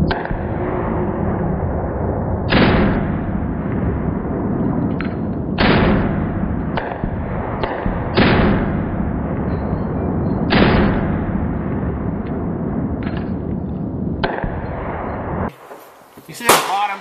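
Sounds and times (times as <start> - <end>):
pistol shots: 5.0 - 12.2, 14.2 - 15.2, 16.4 - 17.0.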